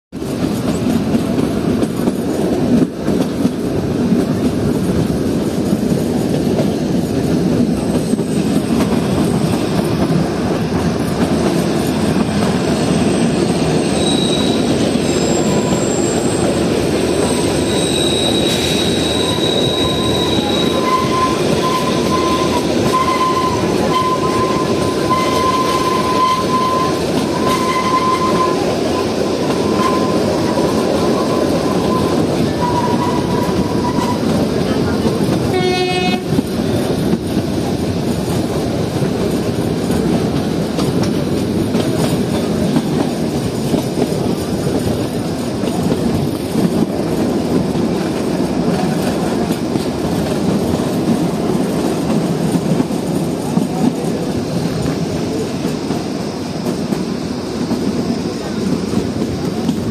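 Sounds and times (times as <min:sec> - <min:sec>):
train wheels rumbling on track: 0:00.1 - 0:59.9
high wheel squeals: 0:12.6 - 0:34.6.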